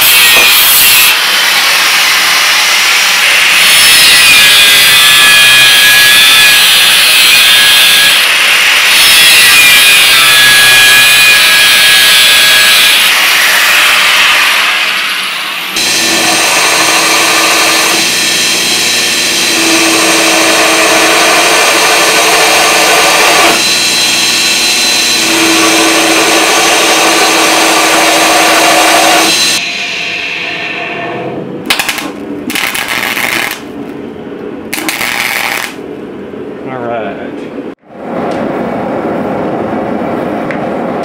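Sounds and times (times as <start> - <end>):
belt grinder grinding steel: 0.0 - 29.6, 31.7 - 33.7, 34.7 - 35.8
arc welder crackling: 31.7 - 33.8, 34.7 - 35.9.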